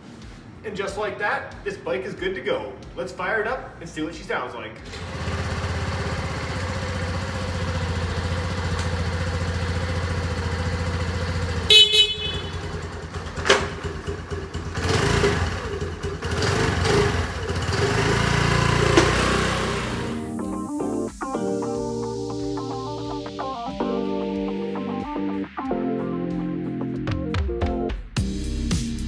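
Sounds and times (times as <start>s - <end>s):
motorcycle engine idling and revving: 4.9s - 20.3s
motorcycle horn: 11.3s - 13.8s.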